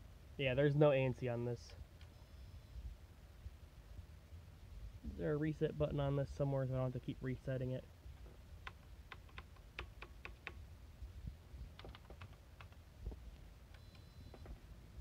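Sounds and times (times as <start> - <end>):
keyboard key clicks: 11.8 - 12.8.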